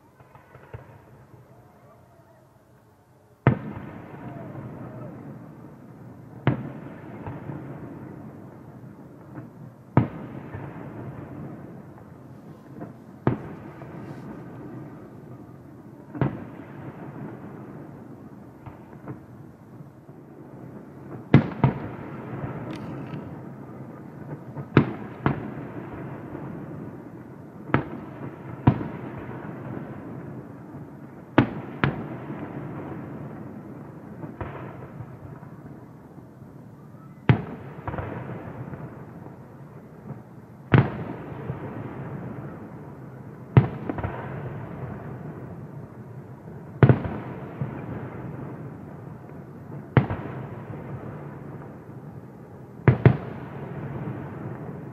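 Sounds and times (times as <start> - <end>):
firework shells bursting: 22.5 - 23.5.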